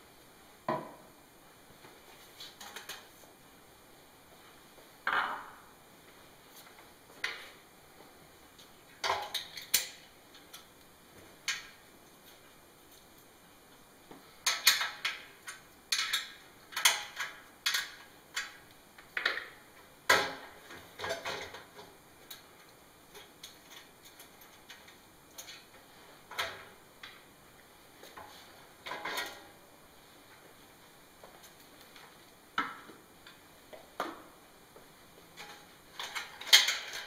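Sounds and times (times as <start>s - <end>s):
metal parts clinking and clanking: 35.4s - 37.0s.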